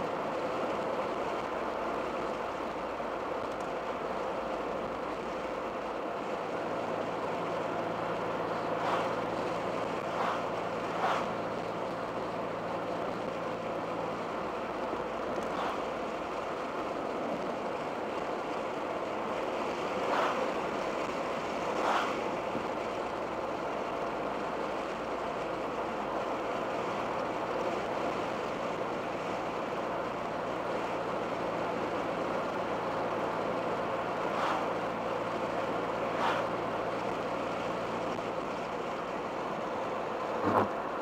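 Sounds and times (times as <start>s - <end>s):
car engine humming in cabin: 0.0s - 41.0s
brief whooshes: 11.0s - 11.3s, 21.8s - 22.2s, 36.2s - 36.5s.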